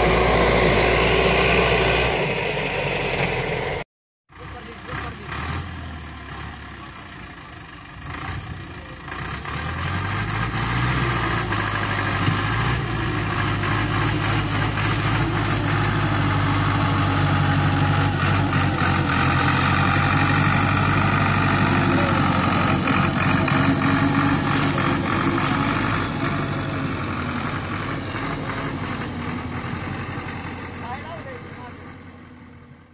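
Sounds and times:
tractor diesel engine under load: 0:00.0 - 0:32.9.

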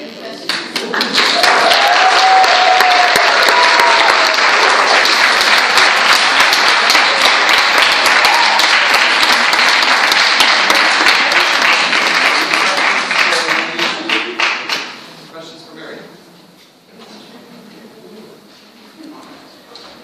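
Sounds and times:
audience applauding: 0:00.4 - 0:15.0.

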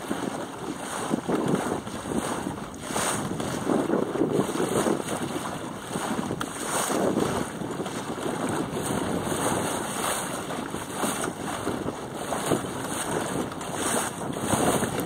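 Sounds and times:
choppy water rushing: 0:00.0 - 0:15.0
wind buffeting microphone: 0:00.0 - 0:15.0.

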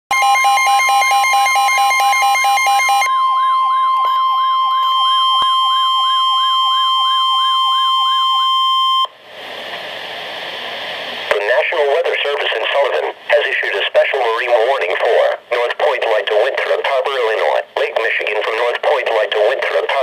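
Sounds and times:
steady high alarm tone: 0:00.1 - 0:09.1
siren-like sweep: 0:01.1 - 0:09.1
radio hiss: 0:09.4 - 0:20.0.

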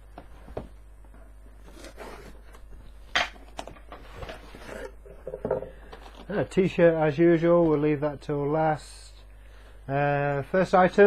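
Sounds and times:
knocks and handling noise: 0:00.0 - 0:06.3.

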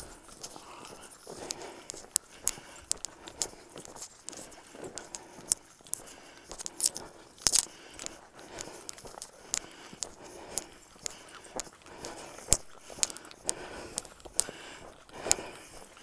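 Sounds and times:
footsteps crunching on snow: 0:00.0 - 0:16.0.

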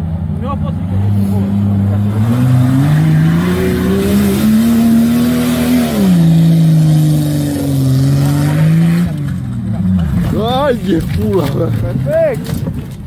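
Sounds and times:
suv engine revving hard: 0:00.8 - 0:09.3.

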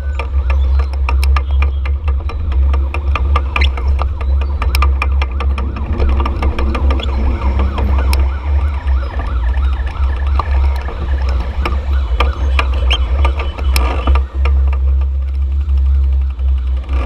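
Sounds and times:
engines rumbling in traffic: 0:00.0 - 0:17.0
scattered clicks: 0:00.0 - 0:17.0
warbling siren tone: 0:00.0 - 0:17.0
wind on microphone: 0:00.0 - 0:17.0.

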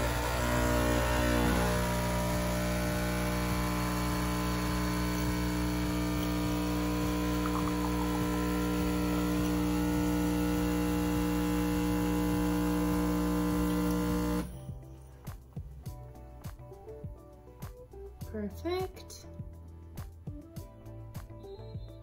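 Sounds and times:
espresso machine pump humming: 0:00.0 - 0:14.5.

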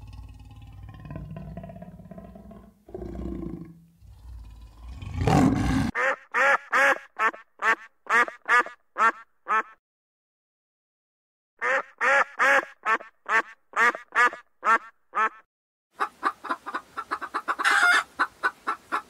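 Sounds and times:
leopard growling: 0:00.0 - 0:06.0
duck honking calls: 0:06.0 - 0:09.8, 0:11.6 - 0:15.4, 0:16.0 - 0:19.0.

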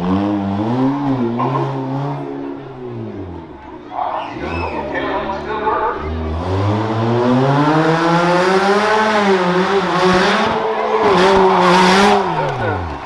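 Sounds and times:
truck engine revving high: 0:00.0 - 0:13.0.

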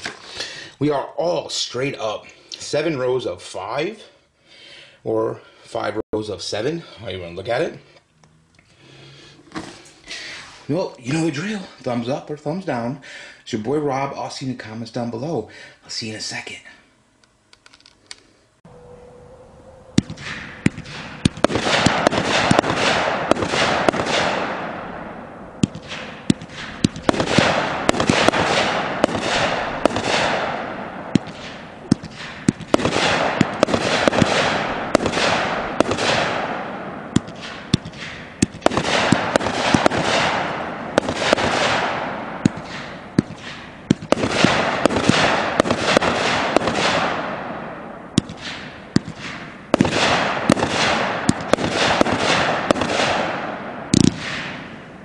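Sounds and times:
firework shots popping and hissing: 0:00.0 - 0:00.6, 0:20.0 - 0:54.8.

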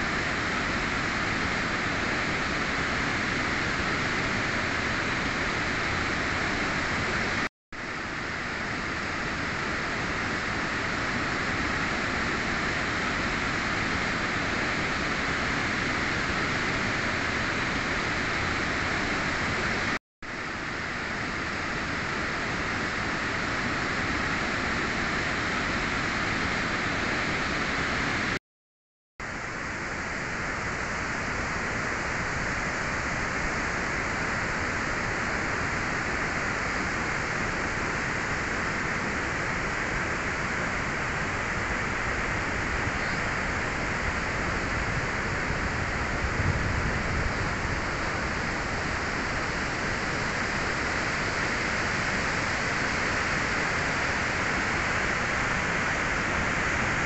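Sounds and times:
waterfall rushing: 0:29.4 - 0:57.0.

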